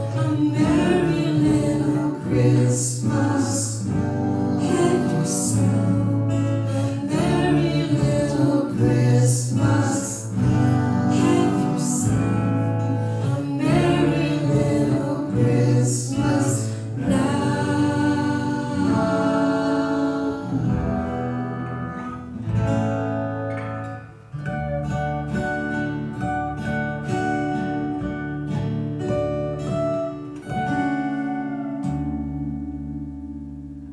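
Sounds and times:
man singing slow ballad: 0.0s - 21.1s
acoustic guitars: 0.0s - 33.9s.

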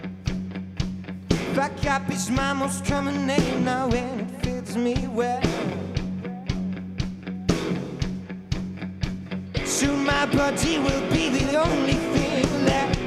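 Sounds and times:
electric guitar: 0.0s - 13.0s
steady drum beat: 0.0s - 13.0s
man singing with vibrato: 1.5s - 6.5s, 9.6s - 13.0s.

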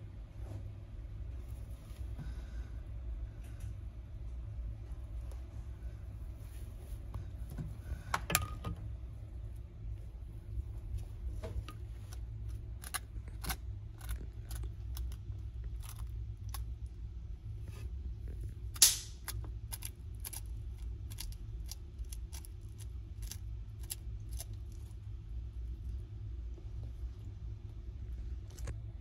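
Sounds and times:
steady low hum: 0.0s - 29.0s
eggshells cracking: 11.6s - 16.8s, 18.6s - 24.9s.

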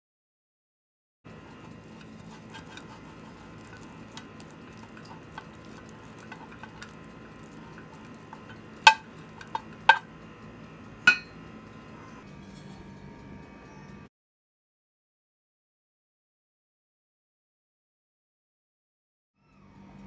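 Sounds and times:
brush scraping metal pan: 1.4s - 10.1s, 12.4s - 12.9s
knocks on metal pan: 11.1s - 11.3s.

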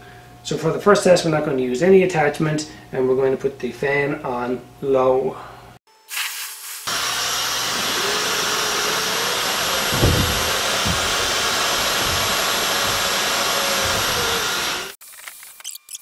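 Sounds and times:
hair dryer running: 6.9s - 15.0s
low thump: 9.9s - 11.3s.

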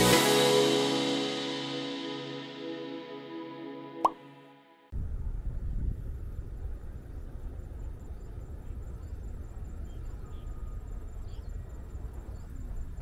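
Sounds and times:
wind buffeting microphone: 4.9s - 13.0s.

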